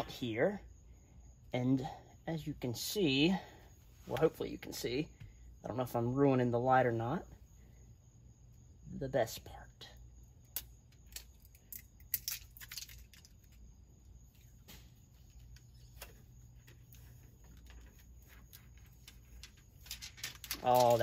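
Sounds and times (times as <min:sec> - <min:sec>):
faint low hum: 0:00.0 - 0:21.0
plastic film crinkling and clicking: 0:15.4 - 0:21.0.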